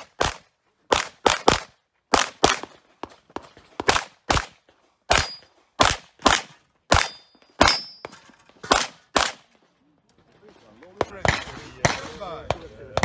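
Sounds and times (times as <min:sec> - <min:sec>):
pistol shots: 0:00.0 - 0:09.5, 0:11.0 - 0:13.0.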